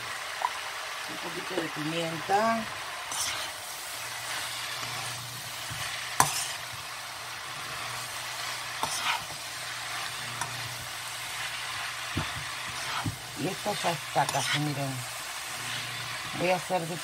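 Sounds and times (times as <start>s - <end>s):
vegetables sizzling in a wok: 0.0s - 17.0s
utensil scraping pan: 3.0s - 6.9s, 7.5s - 16.5s.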